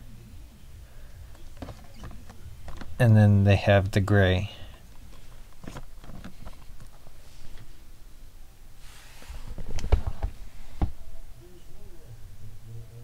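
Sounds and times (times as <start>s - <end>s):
plastic box rustling: 1.3s - 3.0s, 4.7s - 7.8s.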